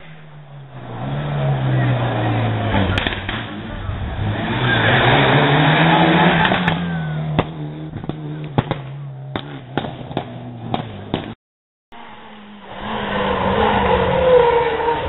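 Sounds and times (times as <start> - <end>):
rally car engine at high revs: 0.0 - 11.4, 12.0 - 15.0
sharp exhaust pops: 2.7 - 3.7, 6.2 - 11.4.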